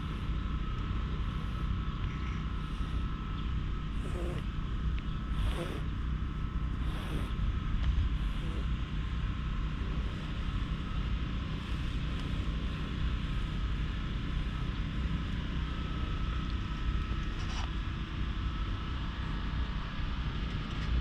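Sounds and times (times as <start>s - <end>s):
far-off traffic: 0.0s - 15.4s.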